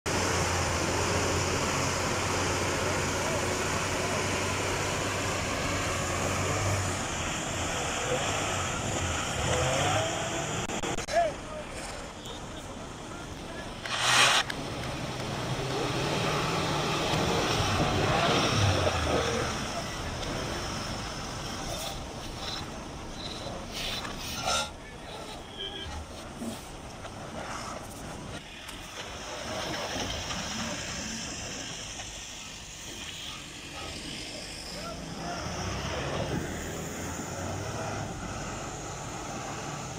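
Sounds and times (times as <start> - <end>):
diesel truck engine running: 0.1 - 39.9
hiss: 13.8 - 14.6, 27.4 - 39.9.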